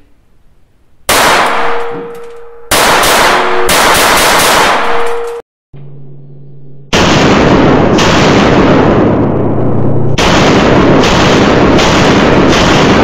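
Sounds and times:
pistol shots: 1.1 - 5.4, 7.0 - 9.3, 10.2 - 13.0.

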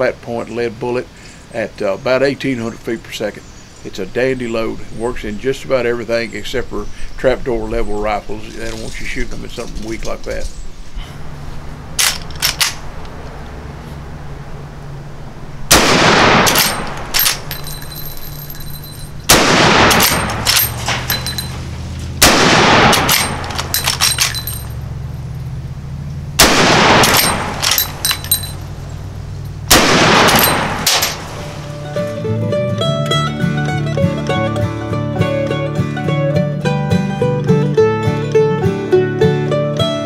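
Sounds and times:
rifle lever metallic clacks: 12.0 - 12.8, 16.4 - 18.0, 19.9 - 21.5, 22.9 - 24.7, 27.0 - 28.6
rifle shots echoing: 15.6 - 18.6, 19.2 - 21.6, 22.2 - 24.8, 26.4 - 28.9, 29.7 - 31.8.

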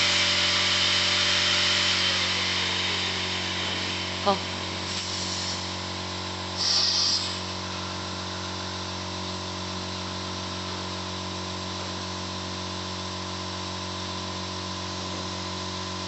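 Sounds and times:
short loud hiss: 4.9 - 5.7, 6.6 - 7.5.

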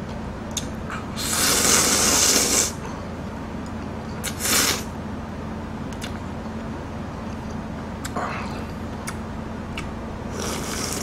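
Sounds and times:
man slurping noodles: 1.2 - 2.8, 4.2 - 4.9, 10.3 - 11.0.

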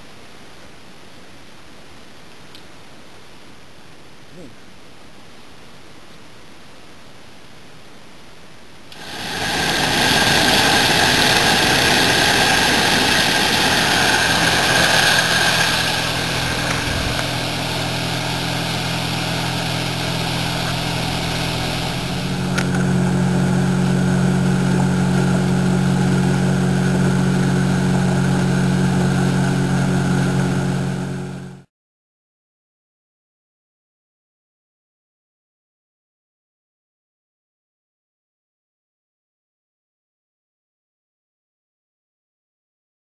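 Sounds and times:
rush of wind and water: 9.0 - 30.4
outboard motor running: 9.0 - 31.6.

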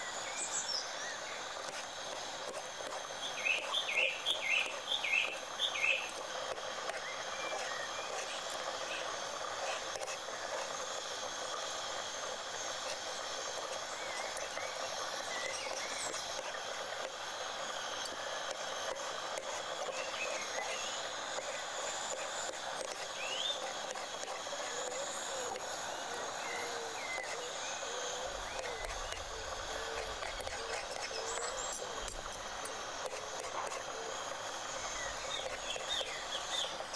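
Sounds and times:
steady outdoor hiss: 0.0 - 36.9
birds chirping: 2.8 - 9.4, 23.1 - 36.9.

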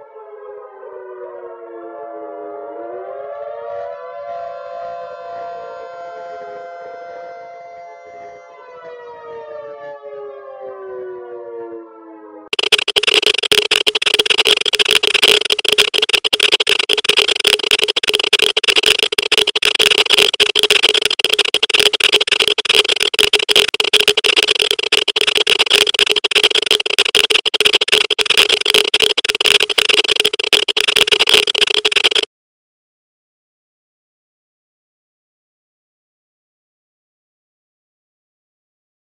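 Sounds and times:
geiger counter crackling: 12.5 - 32.3.

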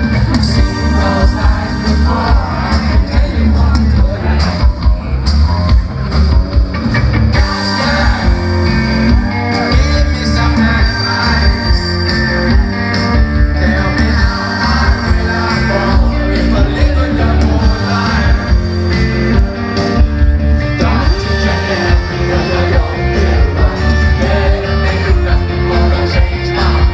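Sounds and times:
live rock band playing: 0.0 - 26.9
man singing into microphone: 0.4 - 4.7, 7.4 - 8.8, 9.5 - 11.9, 13.5 - 18.8, 20.8 - 26.9.

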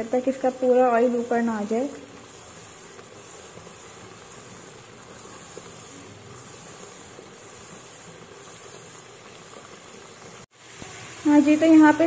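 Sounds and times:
paste sizzling in hot oil: 0.0 - 12.0
wooden spatula stirring: 0.2 - 12.0.

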